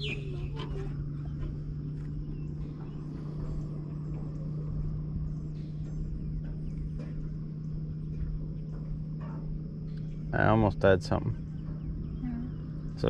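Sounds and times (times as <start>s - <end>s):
high bird chirps: 0.0s - 1.5s
low hum with rumble: 0.0s - 13.0s.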